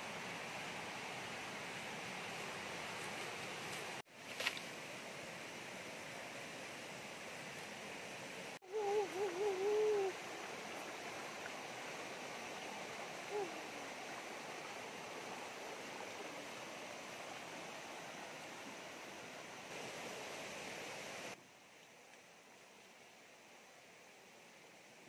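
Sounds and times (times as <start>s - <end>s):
stream rushing over rocks: 0.0s - 25.0s.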